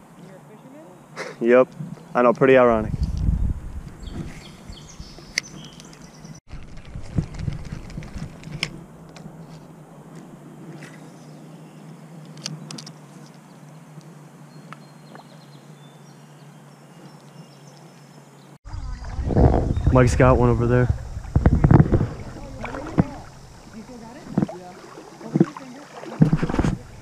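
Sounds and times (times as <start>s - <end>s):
wind noise: 1.8s - 9.5s, 18.7s - 24.6s, 26.2s - 27.0s
river water: 7.5s - 27.0s.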